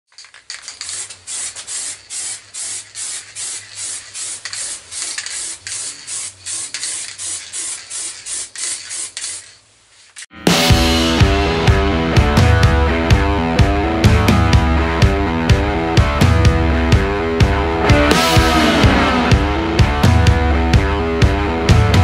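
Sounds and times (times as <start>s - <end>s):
hand sanding strokes: 0.6s - 10.3s
rock music: 10.3s - 22.0s.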